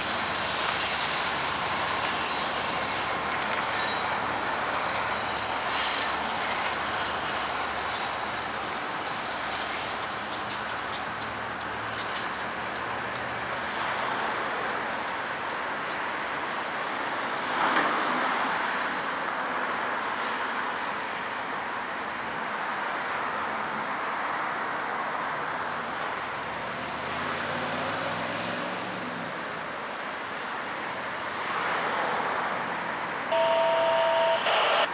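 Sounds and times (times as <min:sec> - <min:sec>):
road traffic: 0:00.0 - 0:34.9
vehicle accelerating: 0:26.5 - 0:29.4
two-tone beep: 0:33.3 - 0:34.9.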